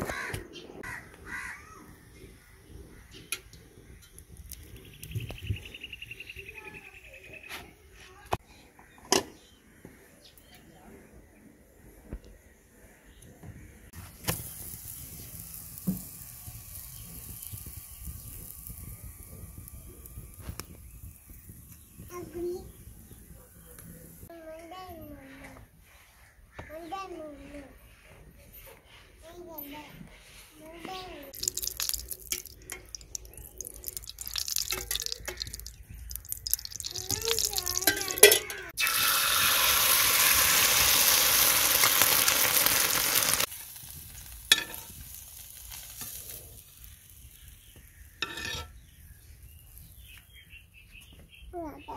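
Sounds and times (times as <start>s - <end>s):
flatbread sizzling: 13.9s - 24.3s, 31.3s - 50.1s
liquid drips: 31.4s - 39.0s
metal spoon clinking in tin: 37.8s - 38.6s.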